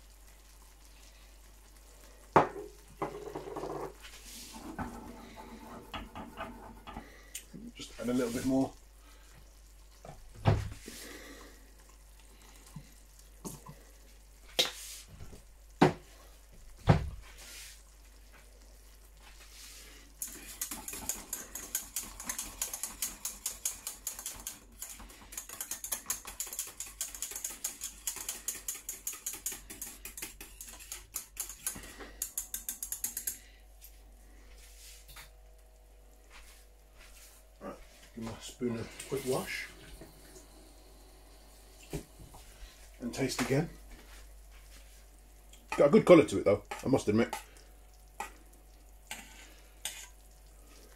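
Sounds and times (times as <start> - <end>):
utensil clicking against saucepan: 20.2 - 33.4.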